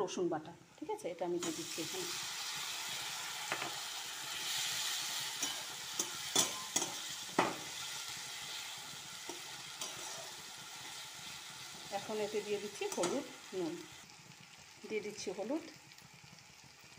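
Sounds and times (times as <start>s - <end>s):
onions sizzling in hot oil: 0.2s - 16.9s
metal spatula stirring: 5.3s - 7.2s, 9.2s - 10.5s, 12.8s - 13.4s.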